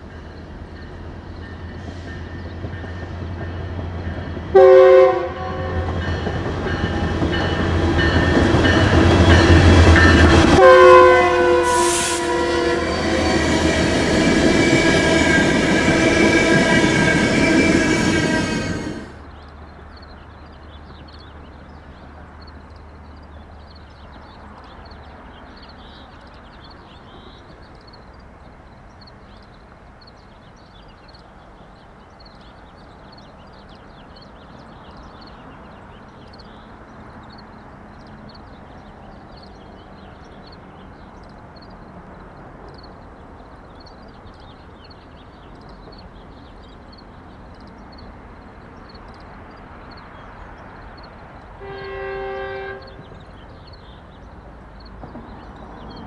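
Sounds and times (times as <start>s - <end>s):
train horn: 4.5s - 19.2s, 51.6s - 53.2s.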